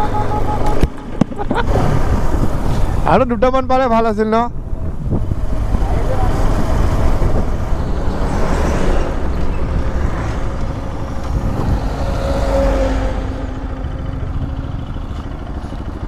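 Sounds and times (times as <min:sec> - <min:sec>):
motorcycle engine: 0:00.0 - 0:03.2, 0:04.5 - 0:16.0
wind rush on microphone: 0:00.4 - 0:12.6.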